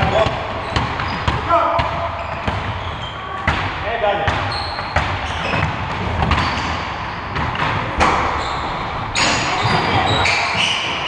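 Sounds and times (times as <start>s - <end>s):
basketball bouncing on gym floor: 0.0s - 11.0s
short high squeaks: 4.5s - 5.6s.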